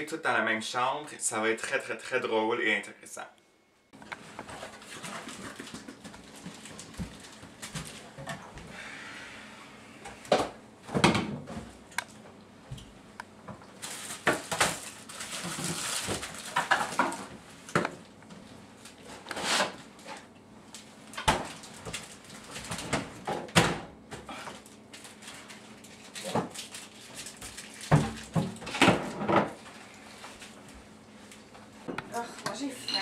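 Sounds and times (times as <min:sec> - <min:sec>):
packaging rustle: 0:04.2 - 0:08.2, 0:13.8 - 0:17.3, 0:24.6 - 0:28.4.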